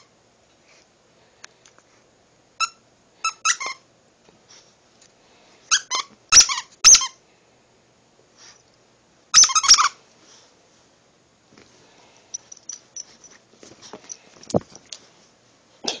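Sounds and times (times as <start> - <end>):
squeaky dog toy squeezed: 2.6 - 3.9, 5.7 - 7.2, 9.3 - 10.0.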